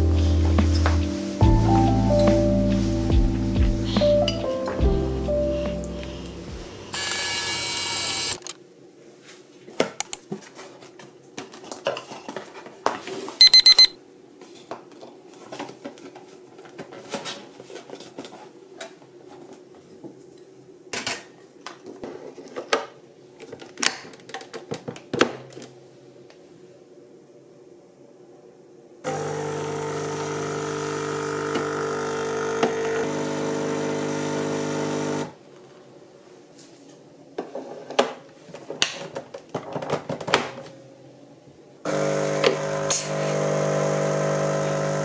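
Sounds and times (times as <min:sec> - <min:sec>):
background music: 0:00.0 - 0:07.0
electronic beeps: 0:13.4 - 0:14.0.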